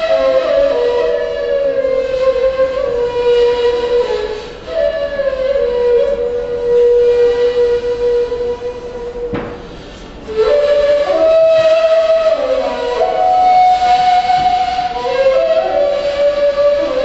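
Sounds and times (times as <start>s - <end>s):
end-blown flute melody: 0.0s - 17.0s
single knock: 9.3s - 9.7s.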